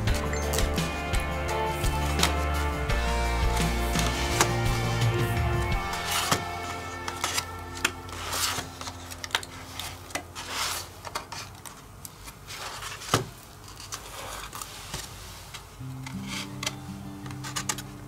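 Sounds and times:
soft background music: 0:00.0 - 0:10.9, 0:15.8 - 0:18.0
card clicks and knocks: 0:02.0 - 0:02.5
cardstock rubbing and sliding: 0:03.4 - 0:18.0.

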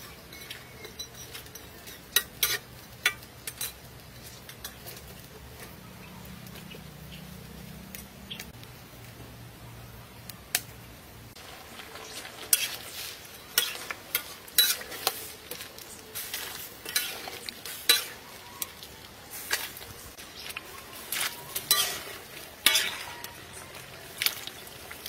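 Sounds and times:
food sizzling in a wok: 0:00.0 - 0:07.8, 0:11.3 - 0:25.0
water pouring and splashing: 0:19.3 - 0:25.0.

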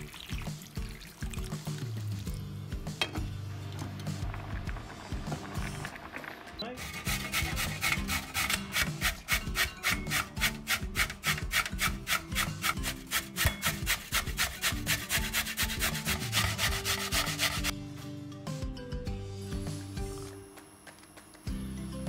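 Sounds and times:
soft background music: 0:00.0 - 0:22.0
food grated on hand grater: 0:06.8 - 0:17.7.

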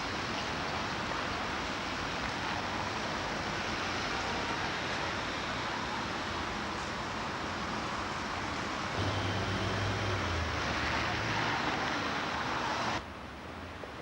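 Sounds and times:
road traffic hiss: 0:00.0 - 0:14.0
vehicle engine hum passing: 0:09.0 - 0:13.0.

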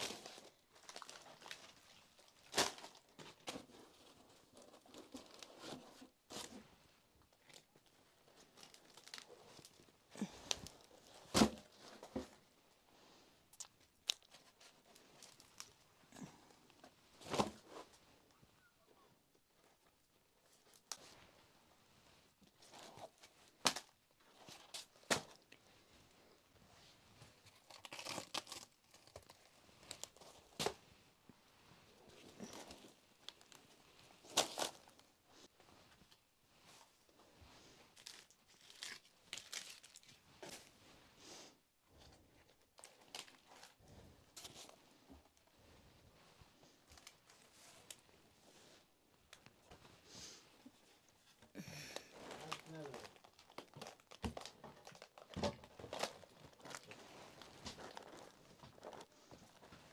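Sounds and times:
tearing and crinkling: 0:00.0 - 0:06.6, 0:07.4 - 0:12.2, 0:13.6 - 0:16.4, 0:27.2 - 0:30.8, 0:32.2 - 0:35.0, 0:37.9 - 0:40.7, 0:42.5 - 0:43.8, 0:51.7 - 0:59.9
crunching and tearing: 0:27.4 - 0:30.8, 0:34.2 - 0:35.0, 0:38.0 - 0:40.2, 0:51.9 - 0:59.1.

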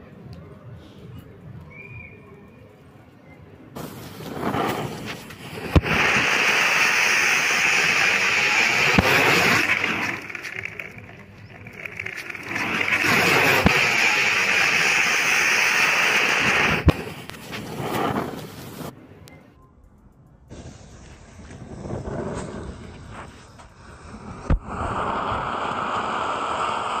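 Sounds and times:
rocket motor hissing: 0:03.8 - 0:19.0, 0:20.5 - 0:27.0.

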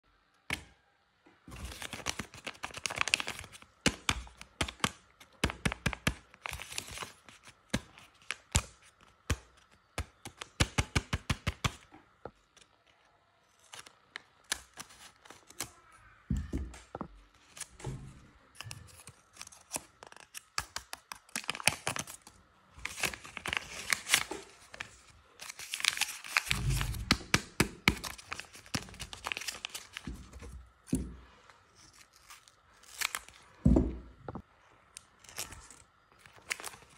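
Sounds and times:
paper bags crackling and tearing: 0:01.5 - 0:09.0, 0:18.5 - 0:30.5, 0:35.2 - 0:36.9.

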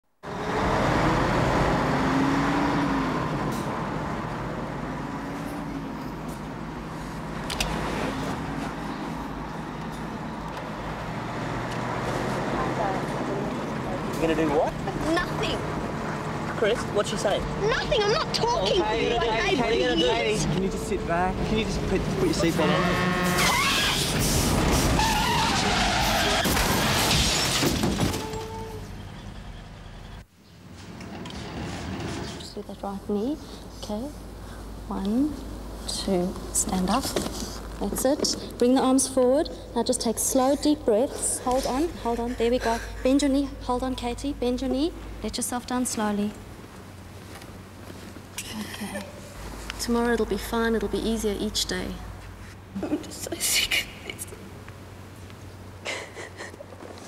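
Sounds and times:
car engine and tyre hum: 0:00.2 - 0:27.2
loud car collision: 0:22.8 - 0:29.5.

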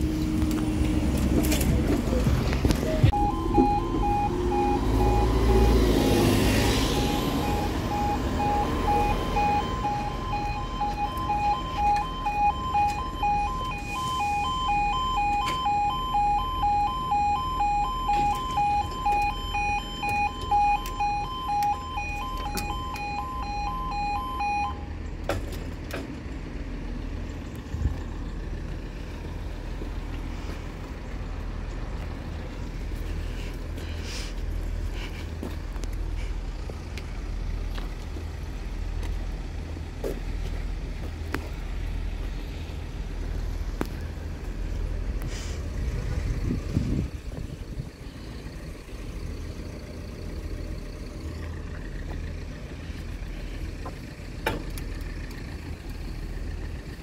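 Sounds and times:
bus engine idling: 0:00.0 - 0:57.0
electronic two-tone warning alarm: 0:03.1 - 0:24.9.

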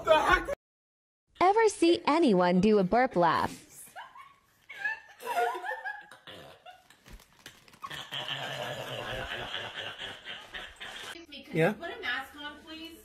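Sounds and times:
woman laughing and burping: 0:04.8 - 0:06.9, 0:07.8 - 0:11.1.

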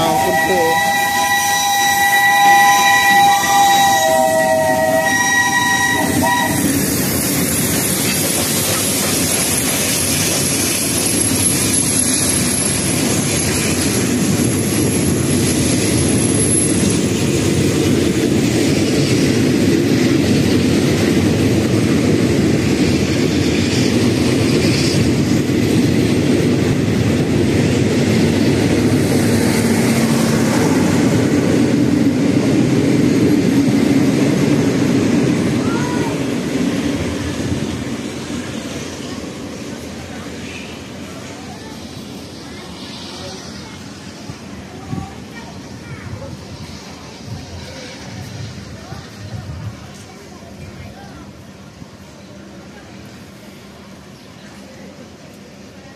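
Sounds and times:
steam locomotive whistle: 0:00.0 - 0:06.8
train rushing and rumbling: 0:00.0 - 0:55.9.

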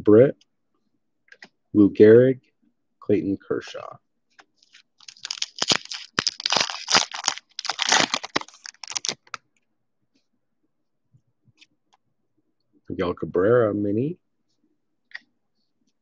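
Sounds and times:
foil wrapper tearing and crinkling: 0:04.6 - 0:09.4.

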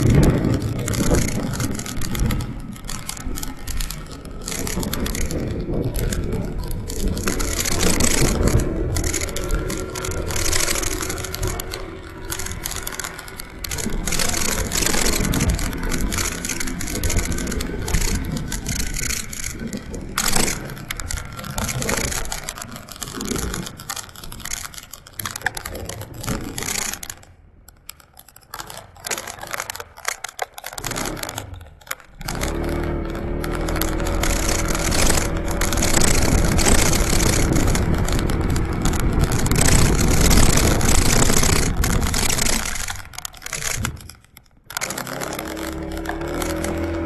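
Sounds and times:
motorcycle engine: 0:00.0 - 0:27.1, 0:30.6 - 0:47.0
wind buffeting microphone: 0:33.0 - 0:43.1.

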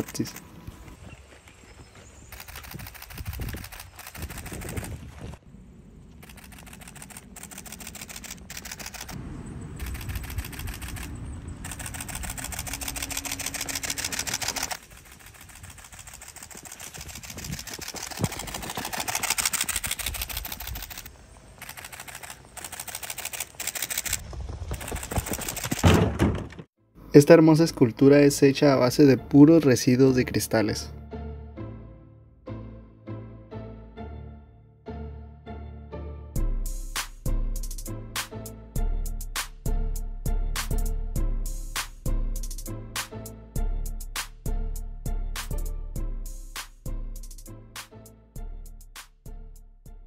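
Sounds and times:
camera shutter clicking: 0:02.3 - 0:04.9, 0:06.2 - 0:09.2, 0:09.8 - 0:24.2
low rumble: 0:04.4 - 0:14.8.

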